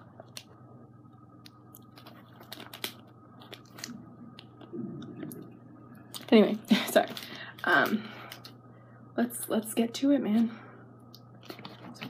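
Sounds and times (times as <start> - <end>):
steady low hum: 0.0 - 12.0
plastic candy packaging crinkling: 1.7 - 4.7.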